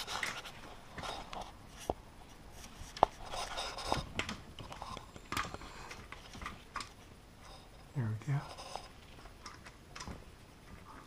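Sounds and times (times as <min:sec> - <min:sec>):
plastic parts clicking and rubbing: 0:00.0 - 0:02.0, 0:02.6 - 0:07.6.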